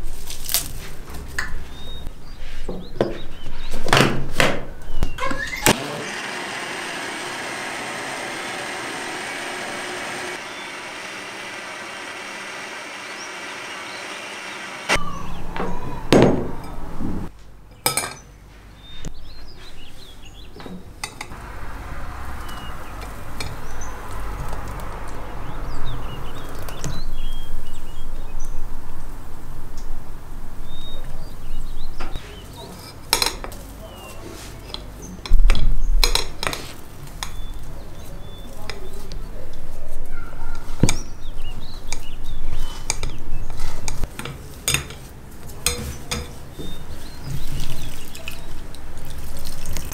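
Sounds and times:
loud low thump: 15.0 - 17.3
thick pulp being poured: 47.4 - 49.9.

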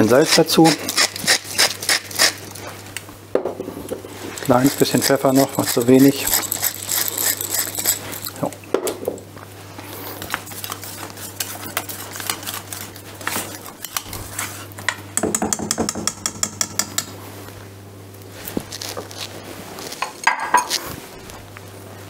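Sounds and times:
whisk scraping a steel bowl: 4.3 - 8.4, 10.4 - 14.7.

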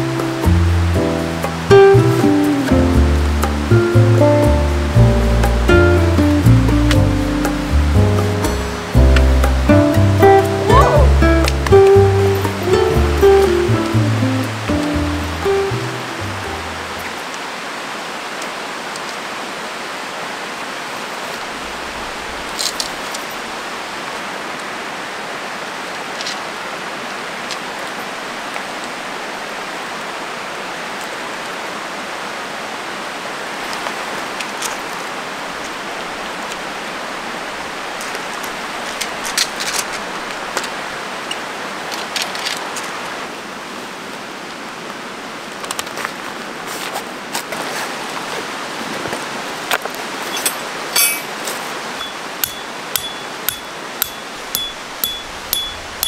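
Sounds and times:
stream flowing over rocks: 0.0 - 56.0
tent poles clinking: 50.2 - 56.0.

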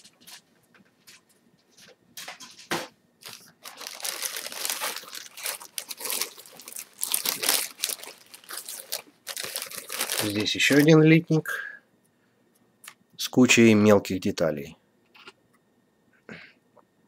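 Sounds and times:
plastic bag crinkling: 3.2 - 11.2.

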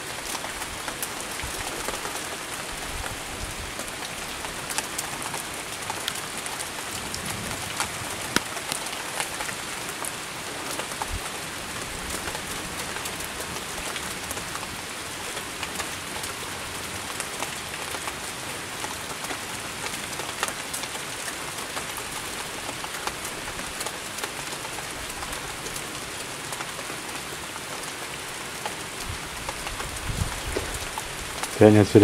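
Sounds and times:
raindrops ticking close: 0.0 - 32.0
rain hissing: 22.3 - 32.0.

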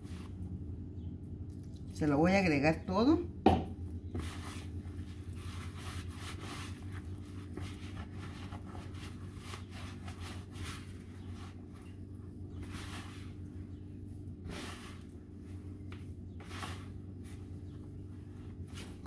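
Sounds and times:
steady low hum: 0.0 - 19.0
hands squishing wet dough: 3.8 - 19.0.

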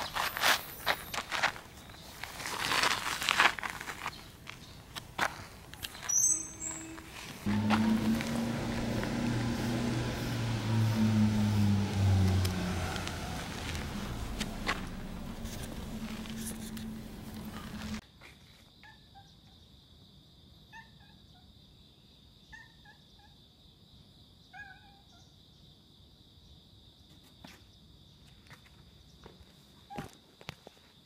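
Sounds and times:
street noise: 0.0 - 18.0
small chirping calls: 5.8 - 7.5.

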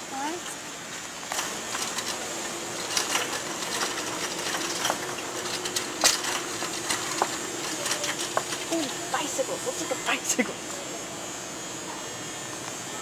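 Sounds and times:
shopping cart rattling: 1.3 - 10.4.

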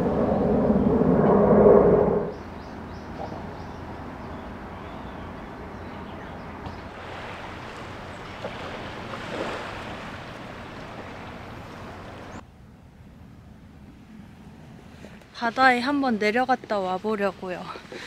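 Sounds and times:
sea waves washing ashore: 6.8 - 12.4.

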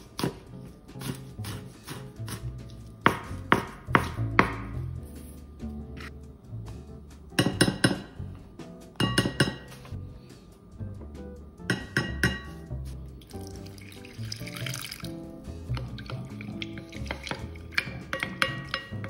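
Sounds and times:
background music: 0.0 - 19.0
wooden spoon clinking glass bowl: 15.7 - 19.0.

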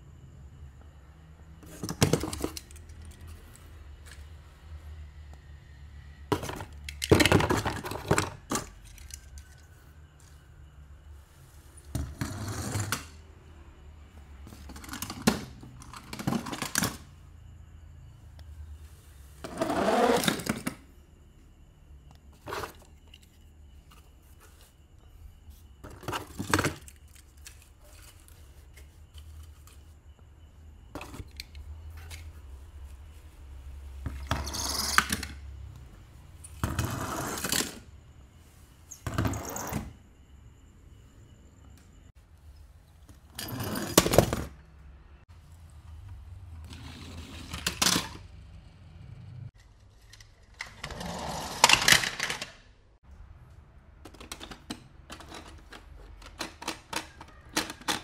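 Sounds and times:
metal toy cars scraping and clinking: 6.4 - 9.9, 34.1 - 35.5, 36.4 - 37.9, 43.3 - 44.5, 46.7 - 48.3, 49.1 - 52.6.

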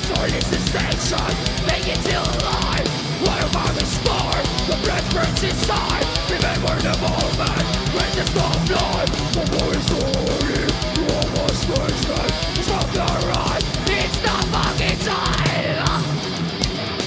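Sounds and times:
distorted electric guitars: 0.0 - 17.0
metal band playing live: 0.0 - 17.0
rapid kick-drum beat: 0.0 - 17.0.

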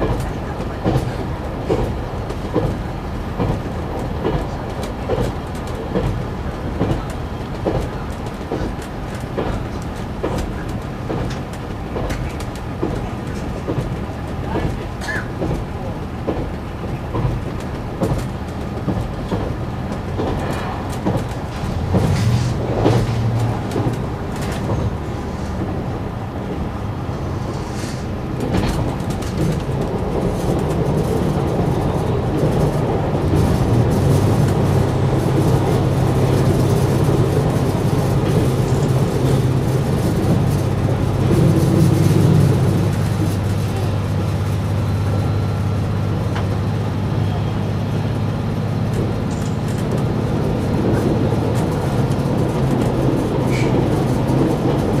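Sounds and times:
wheels running on rail: 0.0 - 55.0
diesel engine droning: 30.7 - 55.0.

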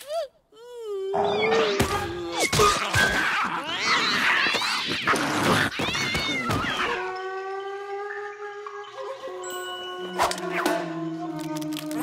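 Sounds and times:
cartoon cat yowling and screeching: 1.1 - 7.7.

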